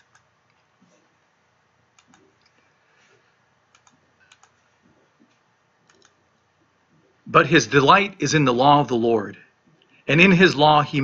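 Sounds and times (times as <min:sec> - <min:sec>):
faint scattered clicks: 0:01.9 - 0:02.6, 0:03.7 - 0:04.6, 0:05.2 - 0:06.2.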